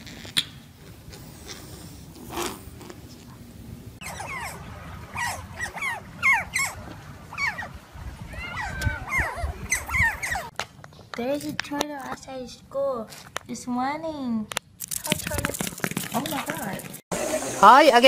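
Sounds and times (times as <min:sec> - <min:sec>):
otters chirping: 0:04.0 - 0:10.5.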